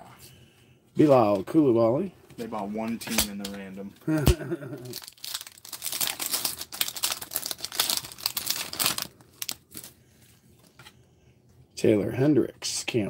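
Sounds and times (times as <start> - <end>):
wrapper crinkling and tearing: 4.8 - 10.0.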